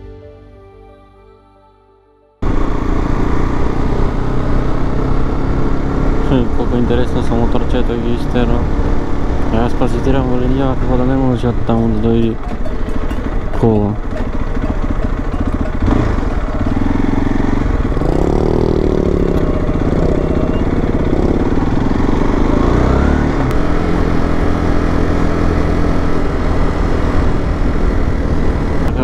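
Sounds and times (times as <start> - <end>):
motorcycle engine running: 2.4 - 29.0.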